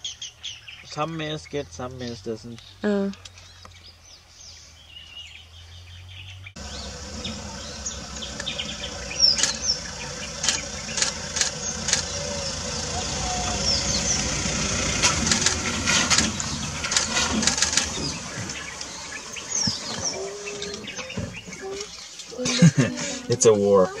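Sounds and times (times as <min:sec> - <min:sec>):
bird chirps: 0:00.0 - 0:22.4
sharp clicks and knocks: 0:15.0 - 0:18.9.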